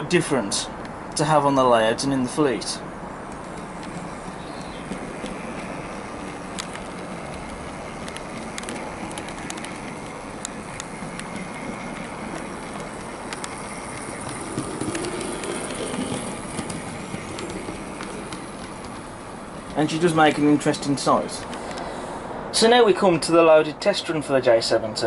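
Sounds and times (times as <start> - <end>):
model train motor and wheels: 0.0 - 22.8
small clicks: 3.3 - 19.8.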